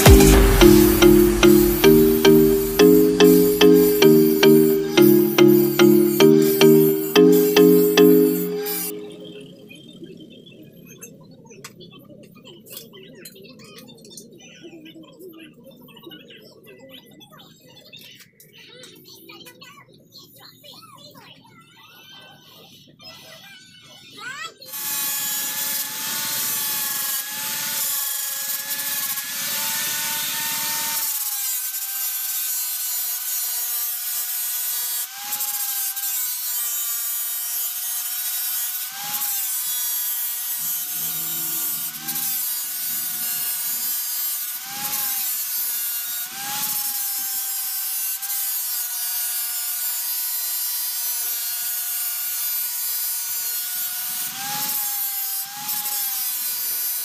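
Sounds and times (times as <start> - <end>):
power tool grinding metal: 24.8 - 57.0.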